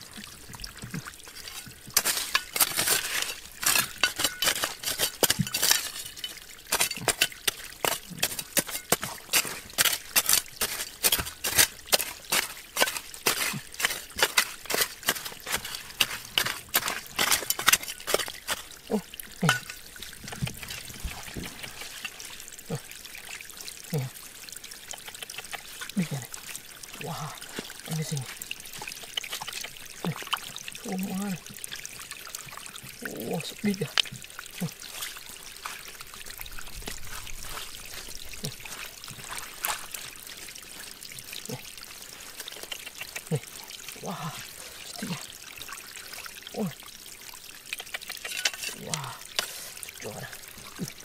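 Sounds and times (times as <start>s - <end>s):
water pouring and trickling: 0.0s - 51.0s.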